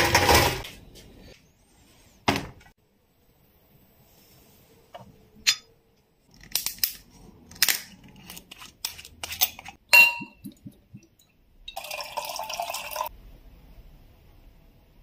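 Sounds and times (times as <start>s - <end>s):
ringing glass clink: 9.9s - 10.4s.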